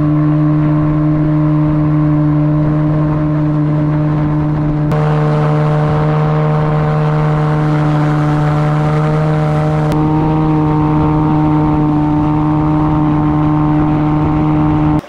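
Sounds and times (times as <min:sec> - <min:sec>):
outboard motor at high revs: 0:00.0 - 0:15.0
rushing water: 0:00.0 - 0:15.0.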